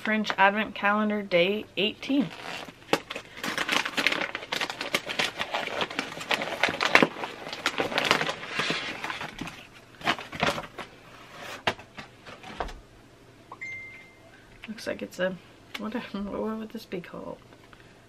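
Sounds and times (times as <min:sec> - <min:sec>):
paper wrapping torn and crumpled: 0:02.3 - 0:10.9.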